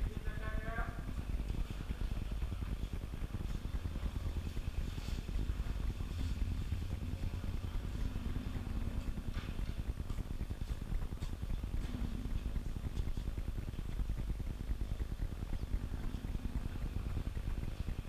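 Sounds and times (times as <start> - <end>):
faint distant voices: 0.0 - 12.7
low rumble: 0.3 - 18.0.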